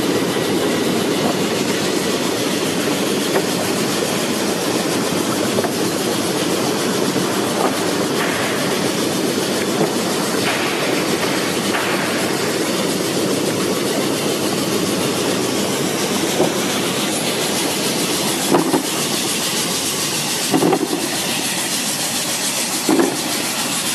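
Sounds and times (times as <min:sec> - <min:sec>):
washing machine rushing and rattling: 0:00.0 - 0:23.9.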